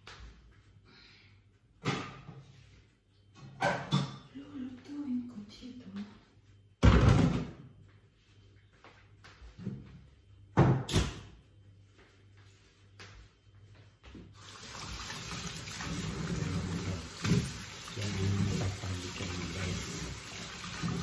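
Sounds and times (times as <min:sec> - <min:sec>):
kitchen knocks and clatters: 0:01.8 - 0:02.5, 0:03.4 - 0:04.4, 0:06.8 - 0:07.7, 0:10.6 - 0:11.3, 0:15.7 - 0:20.1
tap water running into sink: 0:14.4 - 0:21.0.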